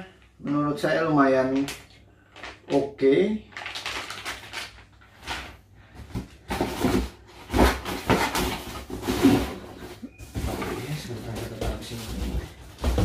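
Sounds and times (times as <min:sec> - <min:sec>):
plastic packet rustling: 0:01.4 - 0:05.7.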